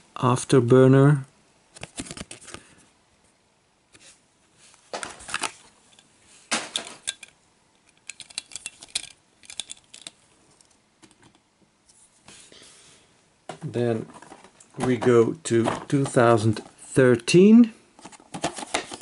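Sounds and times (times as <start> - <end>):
toy truck clicking and rattling: 6.7 - 7.3, 7.9 - 10.2.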